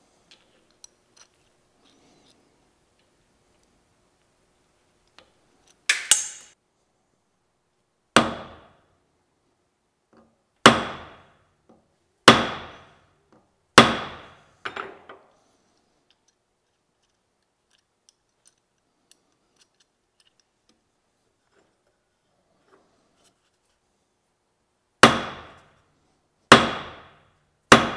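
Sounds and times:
hammer striking steel pin: 5.9 - 6.6, 8.2 - 8.8, 12.3 - 12.9, 13.8 - 14.9, 25.0 - 25.7, 26.5 - 27.9.

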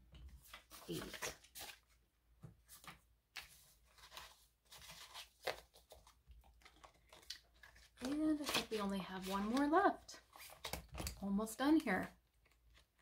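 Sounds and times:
paper bills rustling: 2.7 - 10.8.

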